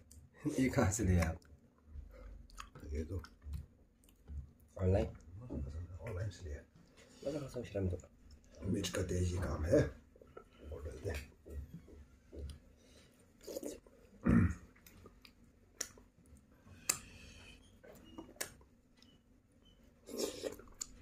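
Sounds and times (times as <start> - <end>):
person chewing: 1.2 - 4.6, 13.2 - 13.9, 14.7 - 19.1, 20.0 - 21.0.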